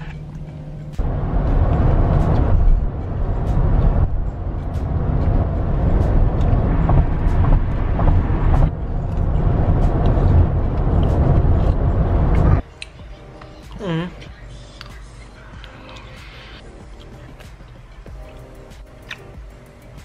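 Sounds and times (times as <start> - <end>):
low rumble inside car: 0.0 - 12.6.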